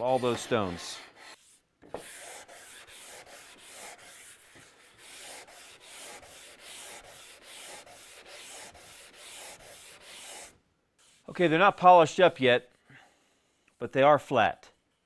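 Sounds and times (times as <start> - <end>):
sandpaper rubbing on wood: 0.0 - 11.4.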